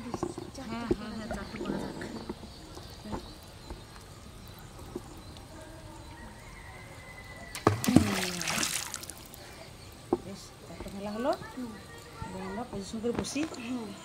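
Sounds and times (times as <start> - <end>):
material slapping water: 7.5 - 9.4
small splashes on water: 7.5 - 9.4.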